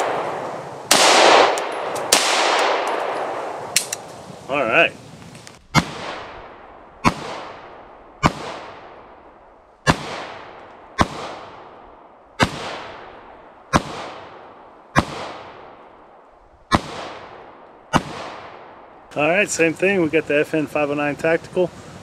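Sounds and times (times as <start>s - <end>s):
pistol shots echoing: 0.0s - 3.9s, 5.7s - 19.1s.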